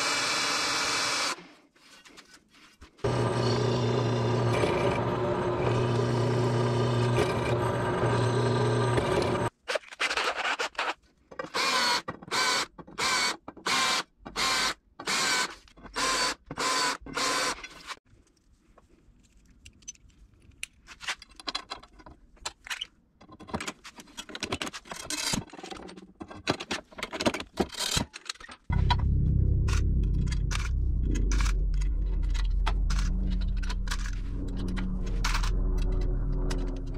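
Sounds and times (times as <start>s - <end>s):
drill bit cutting metal tubing: 3.0s - 9.5s
metal parts clicking and clinking: 19.6s - 28.7s.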